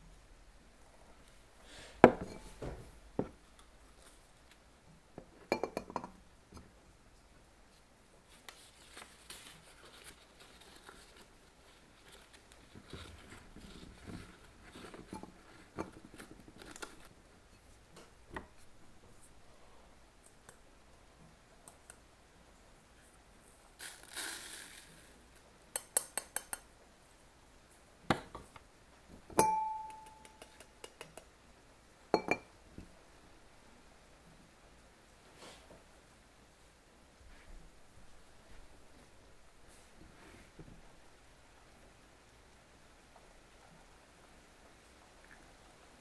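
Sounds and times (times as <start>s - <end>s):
glass and ceramic clinking: 5.5s - 6.2s, 29.3s - 30.2s, 32.1s - 32.5s
paper rustling: 8.3s - 17.1s.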